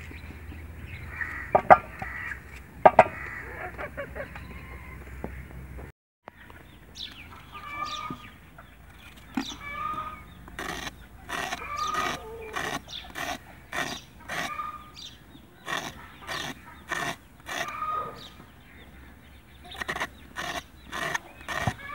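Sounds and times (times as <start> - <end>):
knife scraping gourd skin: 10.5 - 14.6, 15.7 - 17.9, 19.7 - 21.9
short animal calls: 15.6 - 18.4.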